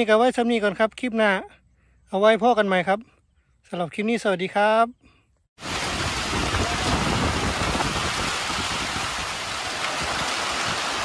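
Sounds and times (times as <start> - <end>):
heavy rain on dirt road: 5.6 - 11.0.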